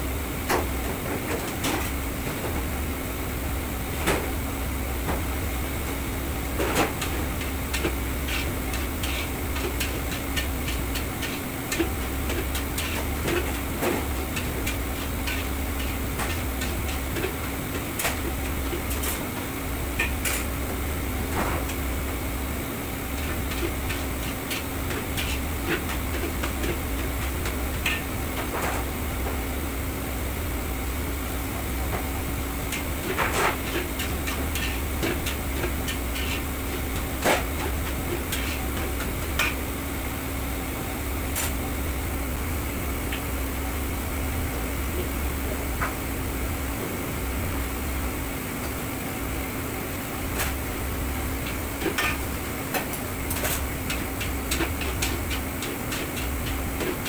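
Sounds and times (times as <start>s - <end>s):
low hum of burners and extraction: 0.0s - 57.0s
metal utensils scraping a wok: 7.7s - 13.6s, 14.4s - 17.8s, 33.0s - 36.5s, 37.7s - 38.8s.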